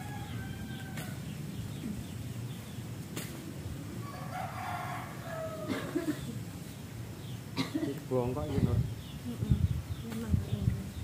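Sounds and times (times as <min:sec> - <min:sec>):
rooster crowing: 0:00.0 - 0:01.3, 0:04.0 - 0:06.0.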